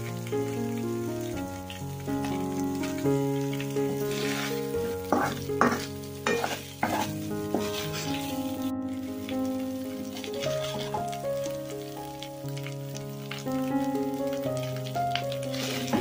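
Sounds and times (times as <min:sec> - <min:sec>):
background music: 0:00.0 - 0:16.0
chicken sizzling in a wok: 0:00.0 - 0:16.0
wooden spatula scraping: 0:03.9 - 0:08.7, 0:10.2 - 0:11.2, 0:15.5 - 0:16.0.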